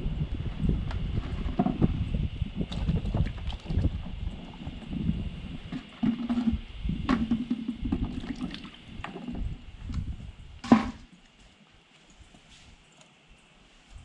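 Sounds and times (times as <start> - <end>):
plastic bucket thump on concrete: 5.7 - 9.2, 10.6 - 11.1.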